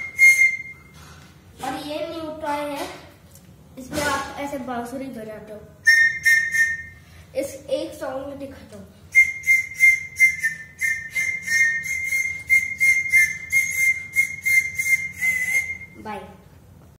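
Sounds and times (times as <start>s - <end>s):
toy flute whistling: 0.0s - 1.0s, 5.8s - 7.0s, 9.1s - 16.0s.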